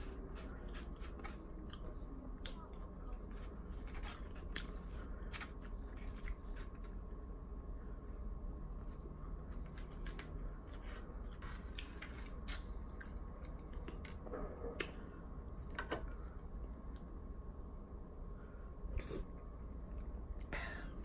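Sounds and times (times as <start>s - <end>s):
person chewing food: 0.0s - 7.1s, 8.6s - 15.0s.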